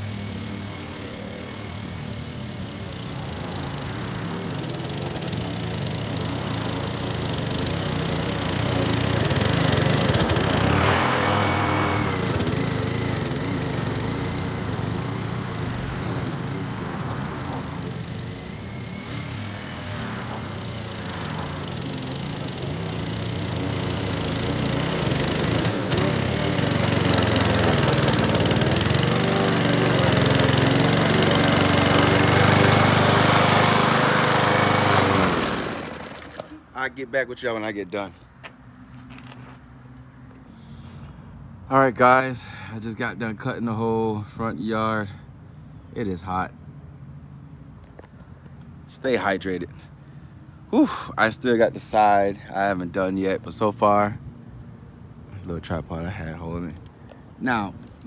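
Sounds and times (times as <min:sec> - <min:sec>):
lawn mower engine running: 0:00.0 - 0:40.0.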